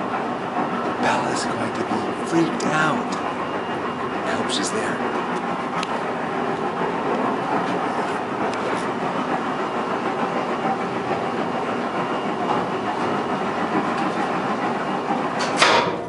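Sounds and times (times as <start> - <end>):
elevator rattling rumble: 0.0 - 16.0
elevator clank: 15.0 - 16.0.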